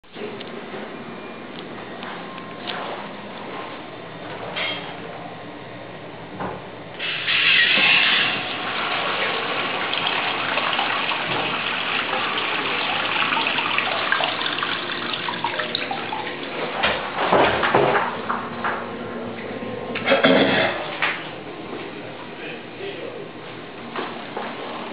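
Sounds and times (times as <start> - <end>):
urinal flushing water: 7.0 - 18.0.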